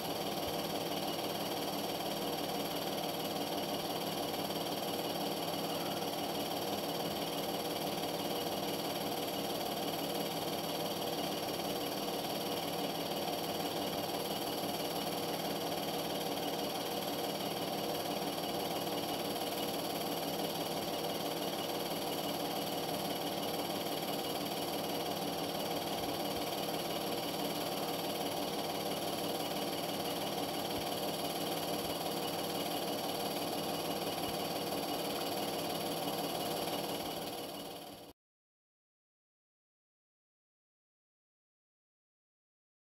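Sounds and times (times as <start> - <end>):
film projector whir and rattle: 0.0 - 38.1.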